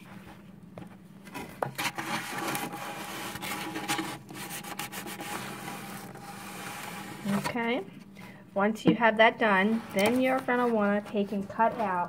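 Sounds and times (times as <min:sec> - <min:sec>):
plastic card scraping on paper: 0:01.3 - 0:07.6, 0:09.8 - 0:12.0.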